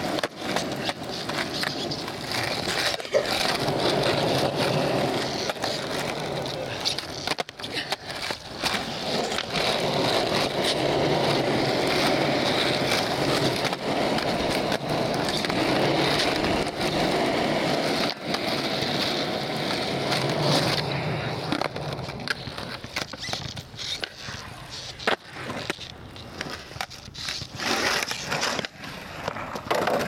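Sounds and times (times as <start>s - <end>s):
skateboard clacks: 0.0s - 30.0s
skateboard wheels rolling on asphalt: 0.0s - 30.0s.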